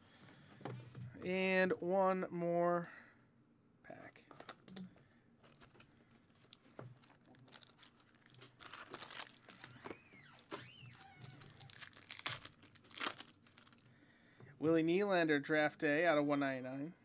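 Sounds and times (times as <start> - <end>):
foil wrapper tearing and crinkling: 6.4 - 13.9.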